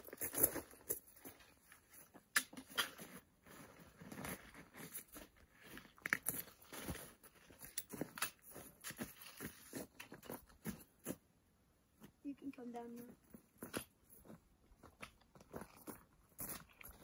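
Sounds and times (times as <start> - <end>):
footsteps crunching on snow: 2.9 - 11.2.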